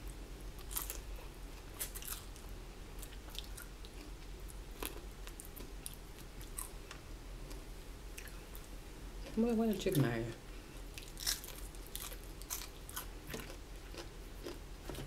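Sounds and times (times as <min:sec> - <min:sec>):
person chewing: 0:00.6 - 0:02.4, 0:03.0 - 0:08.7, 0:10.8 - 0:15.0
crunching fried chicken: 0:00.6 - 0:06.8, 0:10.9 - 0:15.0.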